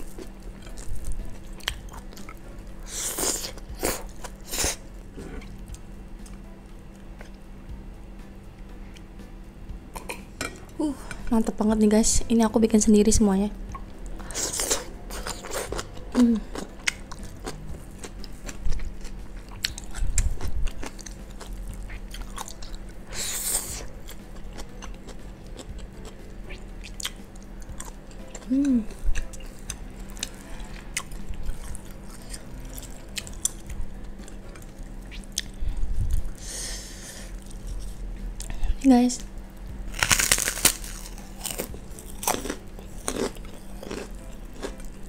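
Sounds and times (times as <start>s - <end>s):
breathy hisses: 36.4s - 37.4s
wet chewing: 40.0s - 44.9s.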